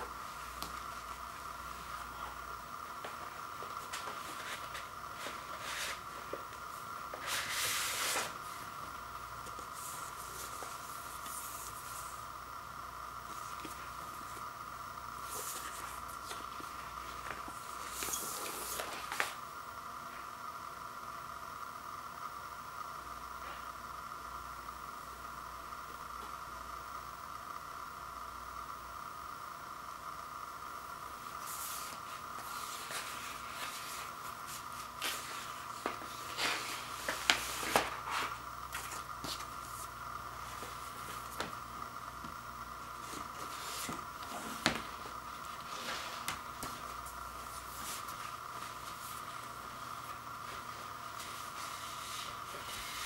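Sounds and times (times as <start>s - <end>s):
steady high hum: 0.0s - 53.0s
paper sleeve rustling: 3.0s - 8.8s, 31.4s - 41.5s, 43.0s - 53.0s.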